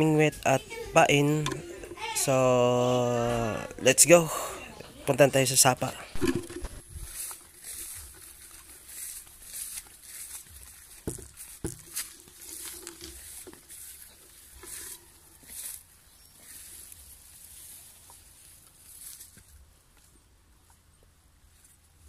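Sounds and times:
leaves and stems rustling: 0:04.9 - 0:22.0
footsteps through tall grass: 0:06.2 - 0:20.8.

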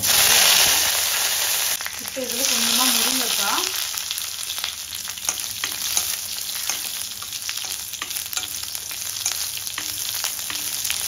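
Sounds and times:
food sizzling in hot oil: 0:00.0 - 0:11.0
wooden spatula stirring: 0:05.2 - 0:11.0.

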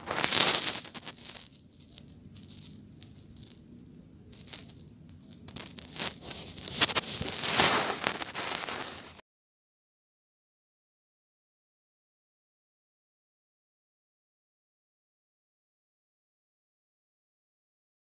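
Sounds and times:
rustling and crackling: 0:00.0 - 0:09.2.

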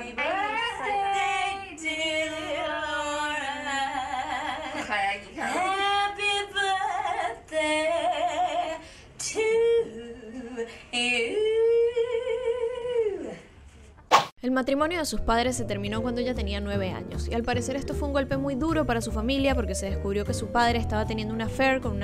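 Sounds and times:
woman singing unaccompanied: 0:00.0 - 0:13.4.

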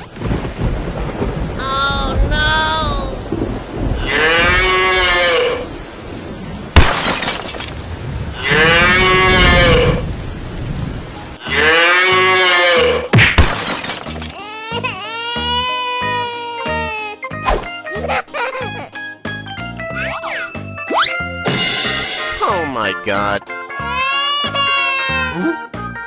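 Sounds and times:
cow mooing: 0:04.0 - 0:05.6, 0:08.4 - 0:10.0, 0:11.4 - 0:13.1
sharp crack: 0:06.8 - 0:08.0, 0:13.1 - 0:14.4.

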